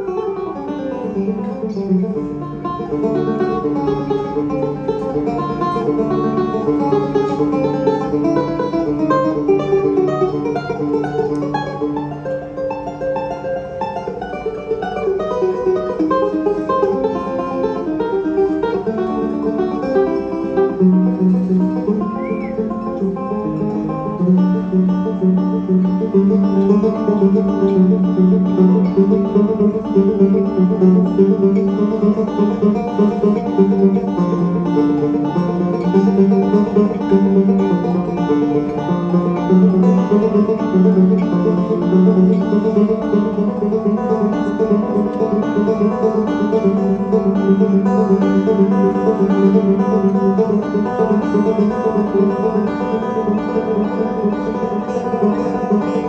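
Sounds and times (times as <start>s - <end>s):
banjo plucked notes: 0.0s - 56.0s.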